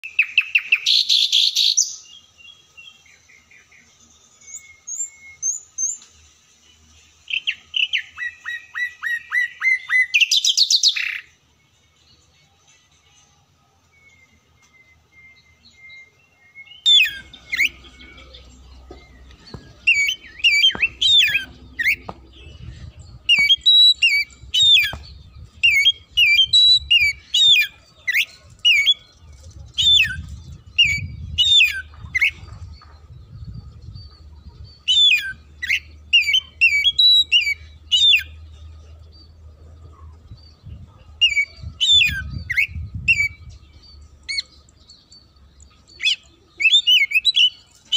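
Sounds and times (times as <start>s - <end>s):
bird singing sharp whistled phrases: 13.9s - 38.4s.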